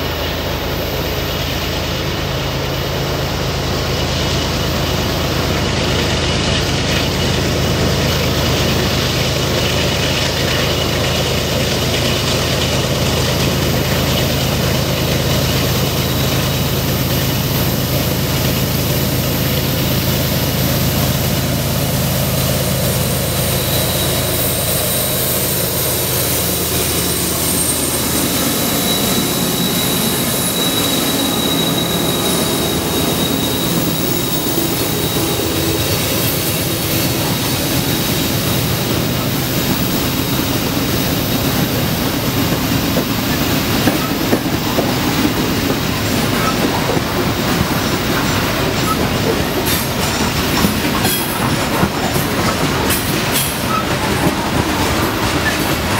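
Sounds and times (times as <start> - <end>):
diesel locomotive engines droning: 0.0 - 55.9
wheel flange squeal: 22.5 - 55.9.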